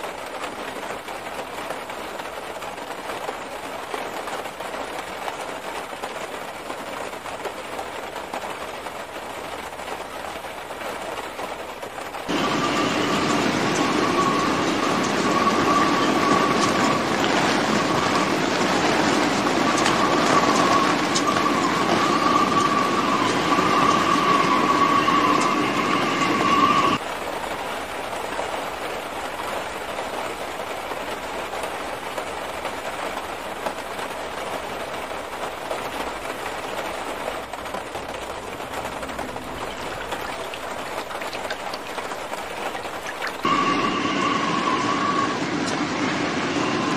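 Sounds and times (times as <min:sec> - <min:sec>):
heavy rain: 0:00.0 - 0:46.9
floodwater roaring: 0:12.3 - 0:27.0, 0:38.9 - 0:46.8
steady high tone: 0:43.4 - 0:45.5.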